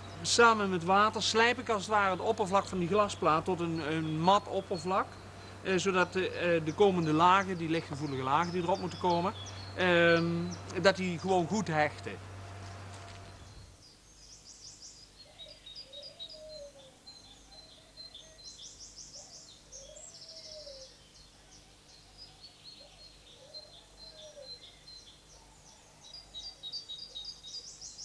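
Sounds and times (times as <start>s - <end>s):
songbirds chirping in trills: 0.0s - 28.0s
low rising and falling bird call: 14.5s - 28.0s.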